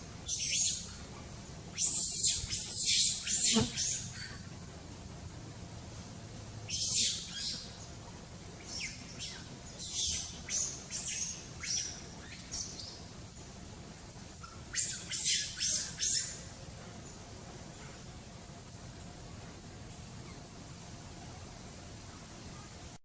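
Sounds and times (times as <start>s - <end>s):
monkey high-pitched calls: 0.2s - 1.1s, 1.7s - 4.5s, 6.7s - 7.8s, 8.6s - 12.9s, 14.3s - 16.5s, 20.2s - 20.4s.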